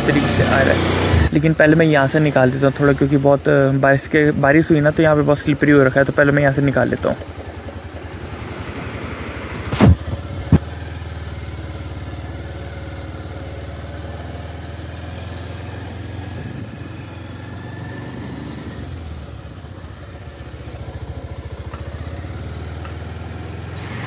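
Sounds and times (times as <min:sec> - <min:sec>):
motorcycle engine thrumming: 0:04.2 - 0:17.7, 0:18.8 - 0:23.9.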